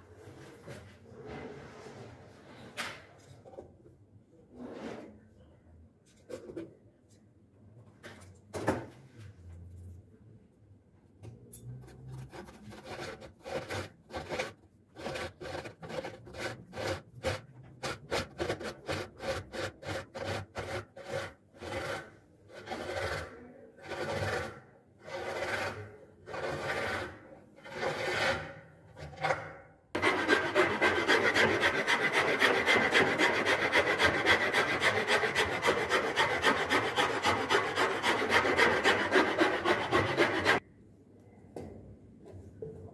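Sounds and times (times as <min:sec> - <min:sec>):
hand file rasping wood: 0:11.9 - 0:28.6, 0:30.0 - 0:40.6.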